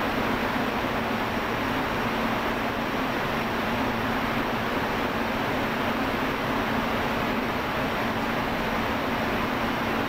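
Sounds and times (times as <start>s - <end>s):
factory background rush and hum: 0.0s - 10.0s.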